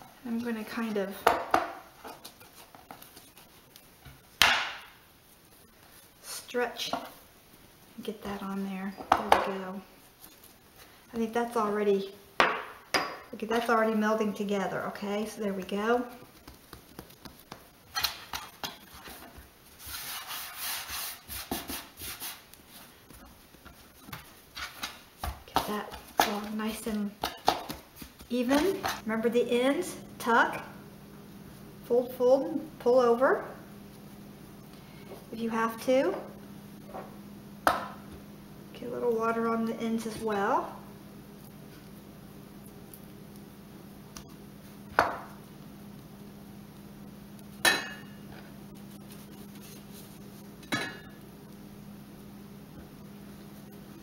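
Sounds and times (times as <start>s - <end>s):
low steady hum: 0.0s - 20.4s, 22.0s - 54.0s
hands rolling dough on board: 0.3s - 6.3s, 15.2s - 29.1s, 48.8s - 50.7s.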